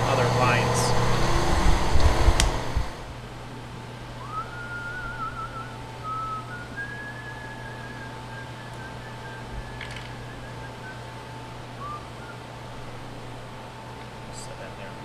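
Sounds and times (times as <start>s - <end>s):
steady low hum: 0.0s - 15.0s
person whistling a tune: 4.2s - 12.4s.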